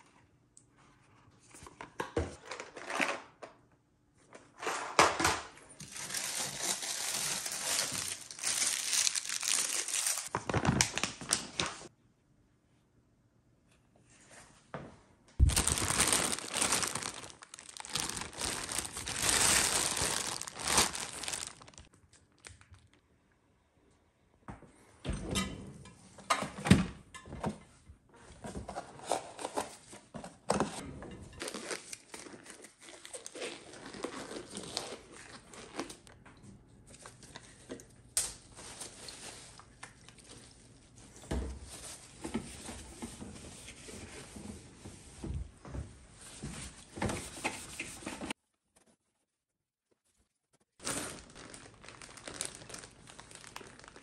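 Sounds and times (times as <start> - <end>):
packaging crinkling: 5.8 - 11.9, 15.4 - 22.8, 50.8 - 54.0
gloves pulled from cardboard box: 6.0 - 10.3, 15.4 - 21.9.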